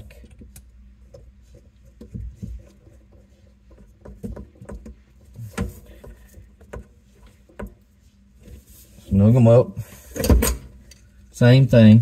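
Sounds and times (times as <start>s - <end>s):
hose fittings knocking and clicking: 1.9s - 6.9s.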